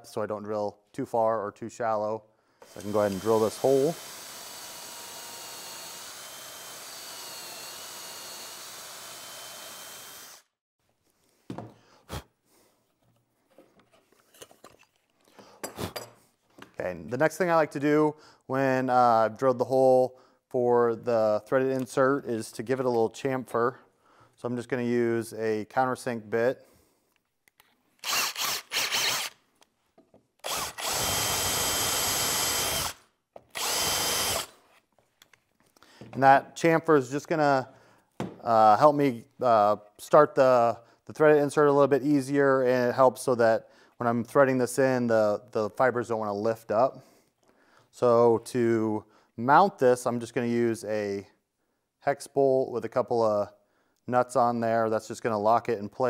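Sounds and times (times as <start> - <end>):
cordless drill boring plywood: 2.6 - 10.5, 28.0 - 29.4, 30.4 - 34.6.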